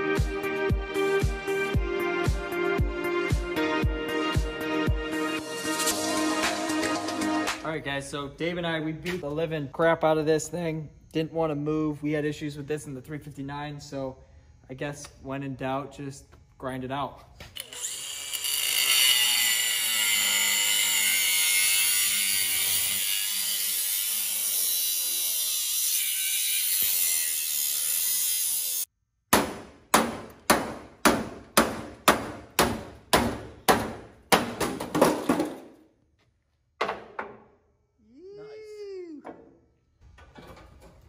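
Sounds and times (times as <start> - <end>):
angle grinder cutting metal: 17.6 - 28.9.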